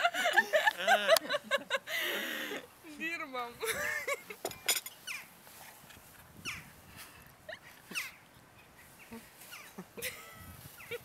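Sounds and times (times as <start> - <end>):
cutlery clinking on china plate: 4.5 - 5.0.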